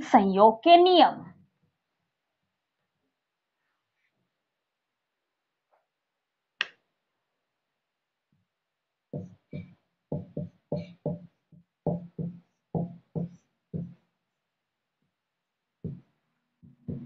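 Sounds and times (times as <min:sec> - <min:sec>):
marker tapping on whiteboard: 0:09.1 - 0:14.1, 0:15.8 - 0:17.0.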